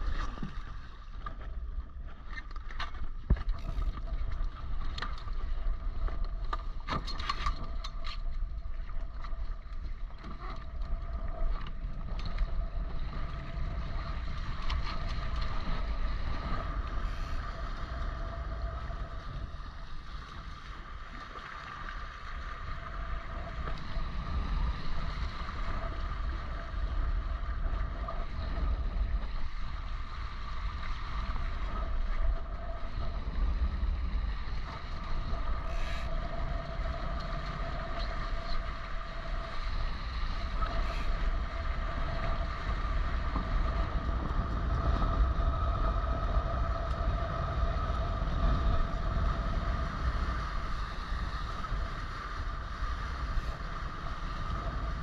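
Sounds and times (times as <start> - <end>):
boat hulls rushing through water: 0.0 - 55.0
wind buffeting microphone: 3.1 - 55.0
steady hum: 3.3 - 55.0.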